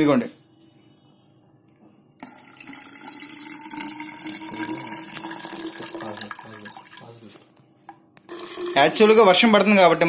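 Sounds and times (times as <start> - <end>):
water pouring into tube: 2.2 - 7.2, 8.3 - 9.2.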